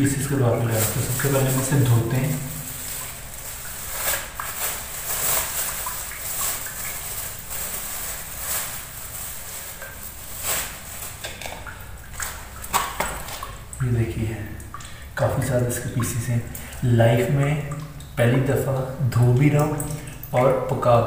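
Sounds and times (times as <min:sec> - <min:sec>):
plastic bag rustling: 0:00.1 - 0:13.4.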